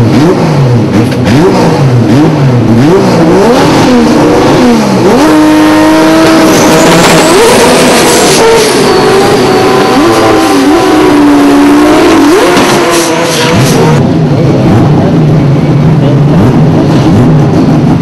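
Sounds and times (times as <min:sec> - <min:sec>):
drag racing car engine revving: 0:00.0 - 0:18.0
tyres spinning in burnout: 0:03.1 - 0:15.3.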